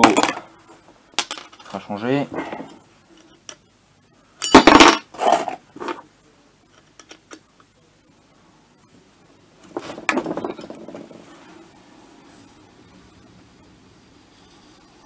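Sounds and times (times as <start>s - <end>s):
metal parts clattering: 4.4s - 6.0s.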